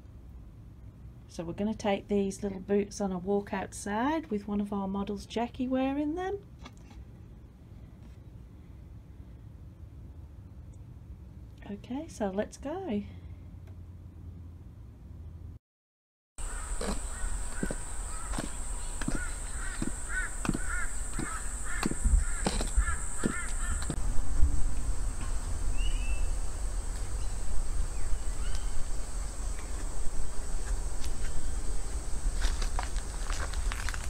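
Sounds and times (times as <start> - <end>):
bird calling: 16.4 - 24.0
heels clicking on concrete: 16.4 - 24.0.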